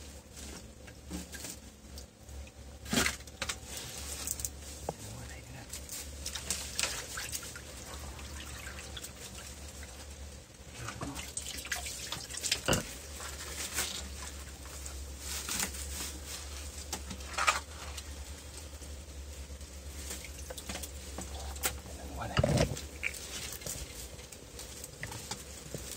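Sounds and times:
low steady hum: 0:00.0 - 0:25.9
water splashing and dripping: 0:06.2 - 0:10.0, 0:10.9 - 0:13.3, 0:20.0 - 0:21.0, 0:22.8 - 0:23.9.

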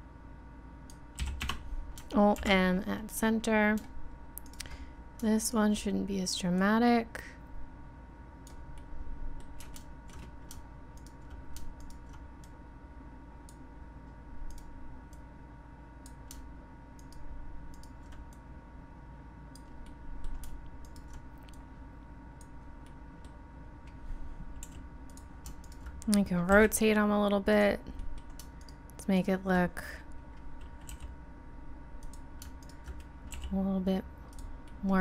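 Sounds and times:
electrical hum: 0:00.0 - 0:35.0
keyboard and mouse clicks: 0:09.4 - 0:12.6, 0:14.4 - 0:15.2, 0:16.0 - 0:18.4, 0:19.5 - 0:21.6, 0:24.6 - 0:26.7, 0:32.0 - 0:33.6.

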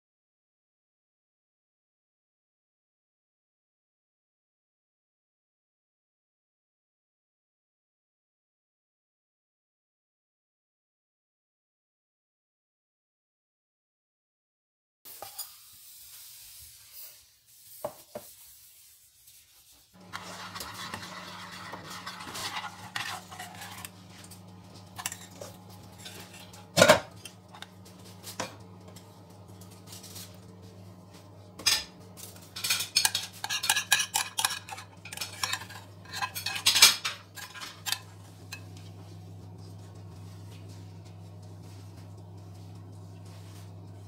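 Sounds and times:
metal utensil clinking and scraping: 0:20.0 - 0:28.6, 0:31.6 - 0:39.0
steady low hum: 0:20.0 - 0:44.0.

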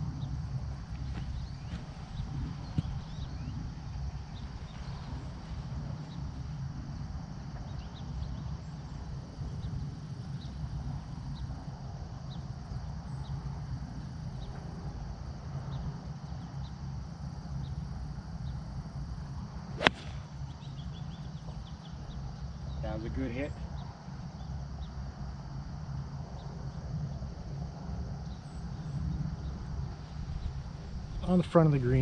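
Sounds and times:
golf club striking ball: 0:19.8 - 0:20.4.

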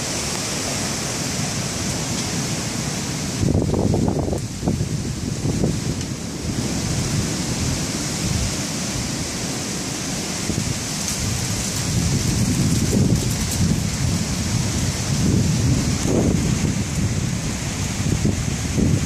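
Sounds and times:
wind and rain hiss: 0:00.0 - 0:19.0
low thunder rumble: 0:10.4 - 0:19.0.

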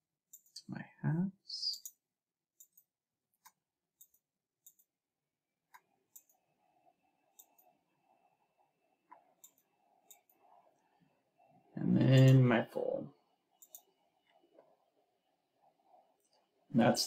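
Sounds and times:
computer mouse clicks: 0:01.7 - 0:05.0, 0:05.7 - 0:08.2, 0:09.0 - 0:10.9, 0:13.5 - 0:14.8
faint steady hum: 0:04.7 - 0:17.0.

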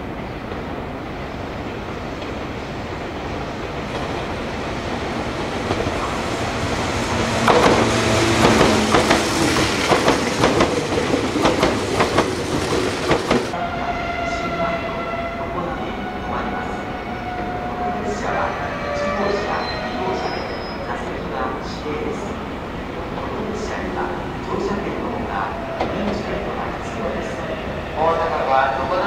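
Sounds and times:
train rumble: 0:00.0 - 0:29.0
train wheels clattering over rail joints: 0:07.2 - 0:13.6.

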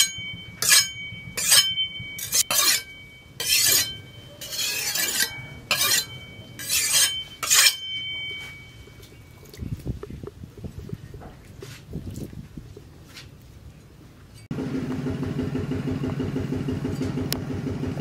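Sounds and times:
blade scraping on sharpening stone: 0:00.0 - 0:08.2
blade ringing: 0:00.0 - 0:09.4.

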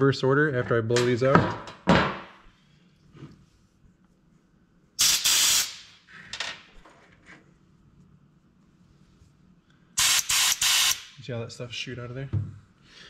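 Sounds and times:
compressed air blow gun hissing: 0:10.0 - 0:11.1.

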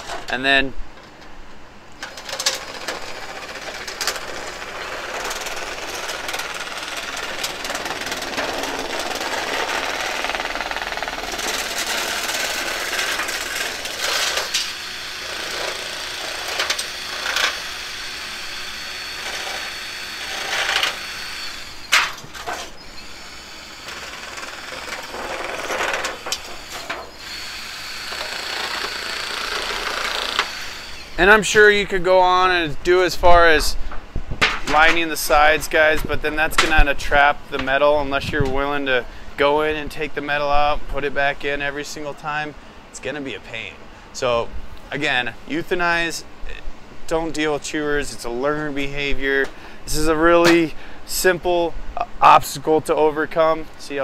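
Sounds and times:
power saw cutting metal sheet: 0:02.0 - 0:31.8.

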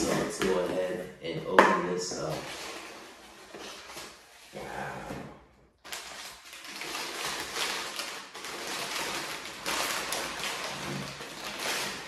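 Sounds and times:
packing paper crinkling: 0:05.8 - 0:12.0.

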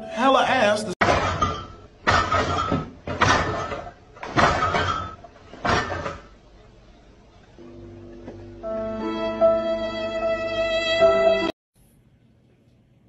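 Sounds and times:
refrigerator contents rattling: 0:01.1 - 0:06.3.

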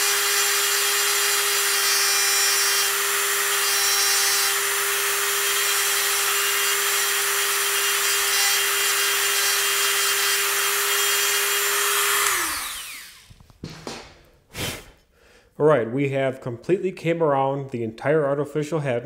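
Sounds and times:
rotary tool grinding: 0:00.0 - 0:13.3.

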